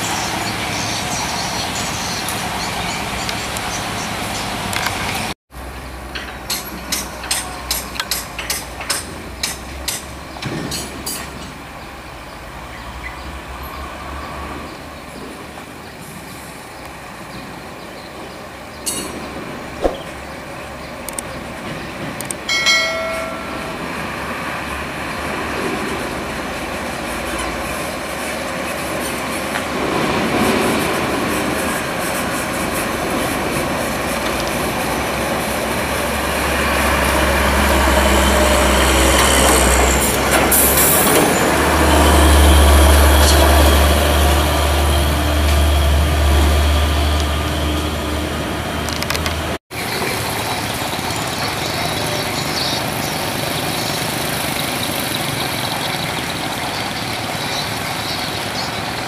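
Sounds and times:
diesel truck engines rumbling: 0.0 - 59.0
timber loads rattling and clanking: 5.9 - 11.8.

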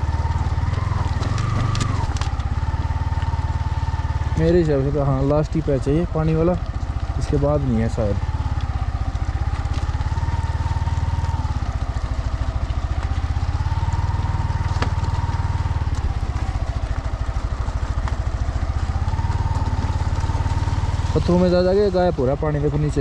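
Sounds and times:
motorcycle engine at low speed: 0.0 - 23.0.

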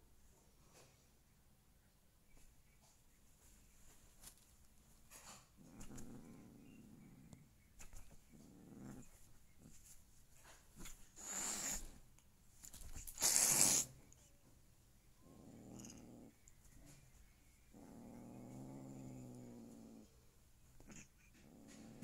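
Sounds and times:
cat growling: 5.4 - 9.8, 11.1 - 12.0, 13.0 - 14.2, 15.2 - 22.0
cat hissing: 11.0 - 12.1, 12.8 - 14.2.

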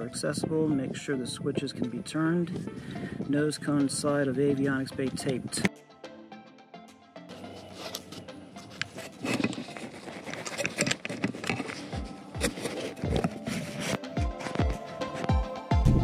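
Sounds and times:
muffled scraping and rustling: 7.3 - 15.3.

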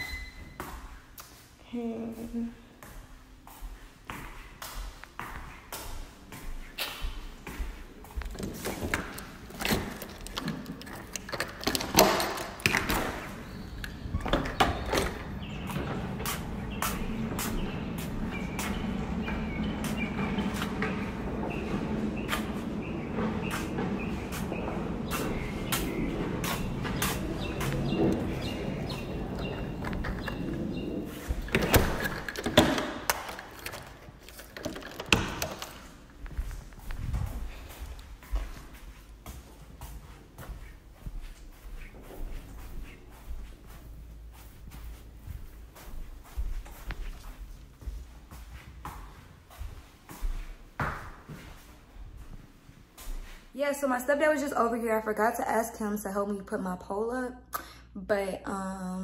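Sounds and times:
handling noise: 7.4 - 39.6
door swinging open rush: 7.7 - 39.2
door handle and latch clicks: 31.5 - 35.9.

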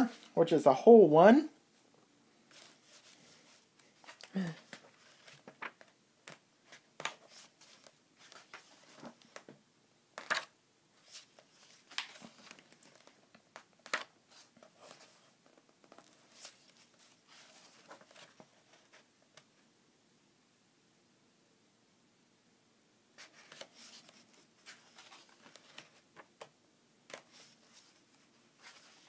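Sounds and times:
pages turning and rustling: 2.5 - 9.6, 10.2 - 19.5, 23.2 - 29.0.

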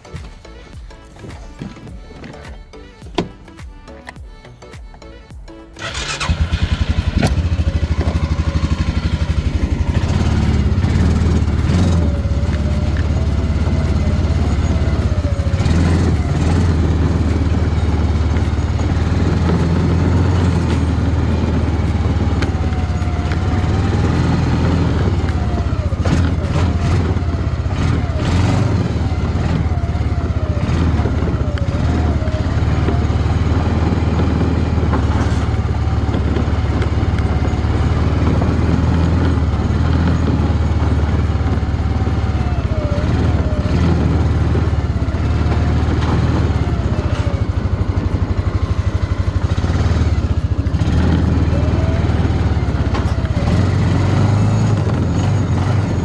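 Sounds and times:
small gasoline engine running: 5.8 - 56.0.

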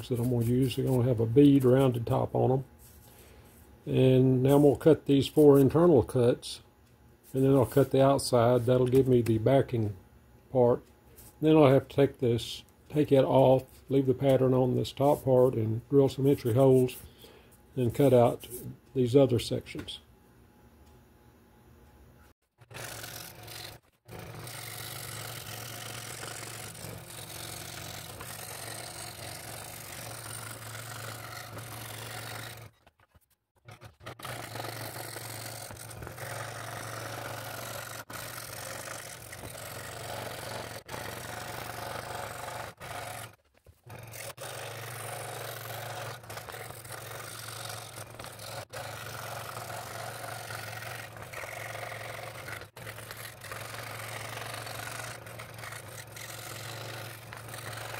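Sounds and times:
scroll saw cutting wood: 22.6 - 57.9.

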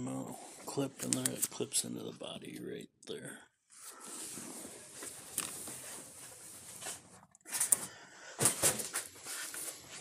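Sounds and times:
rustling and scraping handling: 3.8 - 10.0.

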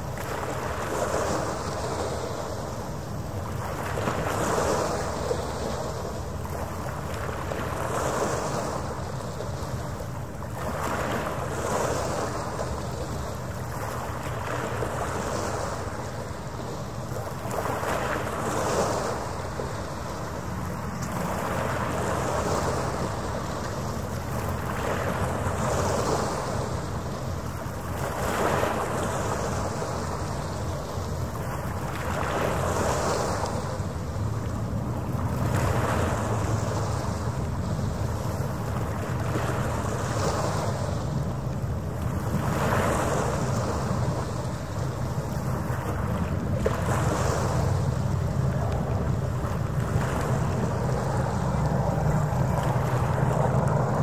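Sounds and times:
waves washing against shore: 0.0 - 54.0
steady low rumble: 43.2 - 54.0.

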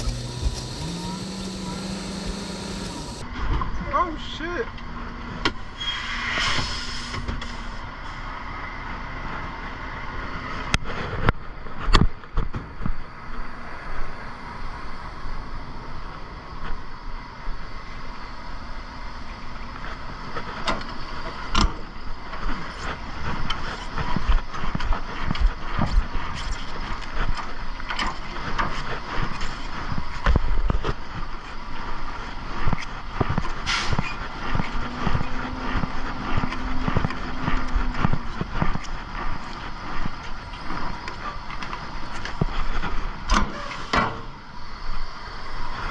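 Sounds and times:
truck engine drone: 0.0 - 4.1, 4.7 - 45.9
sharp clanks and rattles: 19.7 - 44.4.

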